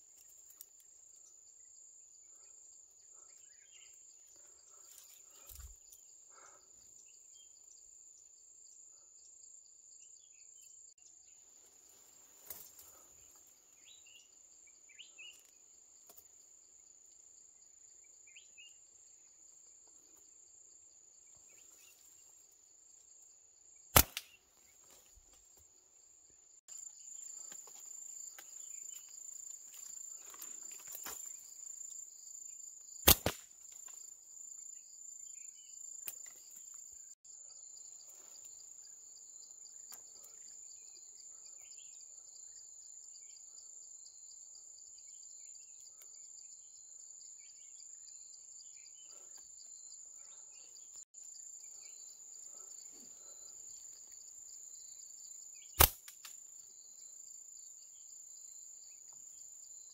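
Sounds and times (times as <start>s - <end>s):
high-pitched insect chorus: 0.0s - 59.9s
sharp crack: 24.0s - 24.4s, 33.0s - 33.5s, 55.8s - 56.2s.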